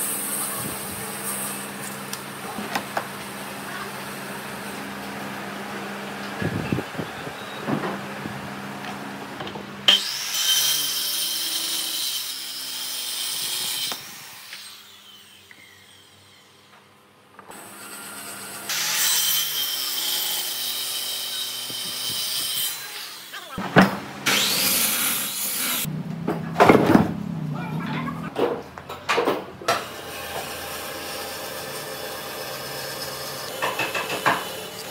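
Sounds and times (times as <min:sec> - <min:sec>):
power saw cutting wood: 0:09.8 - 0:16.8, 0:17.5 - 0:28.4, 0:29.7 - 0:34.9.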